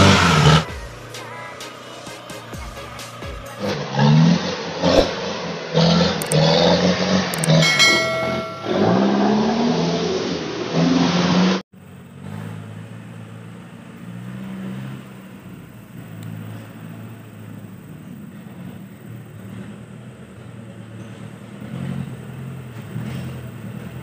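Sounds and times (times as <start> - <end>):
diesel truck engine revving: 0.0 - 7.6, 8.6 - 24.0
distant truck engine: 0.0 - 24.0.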